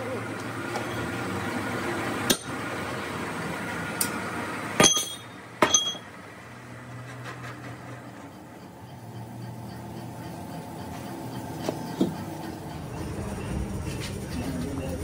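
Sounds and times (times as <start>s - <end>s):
metal clinks on engine block: 4.8s - 6.1s
steady low hum: 8.1s - 15.0s.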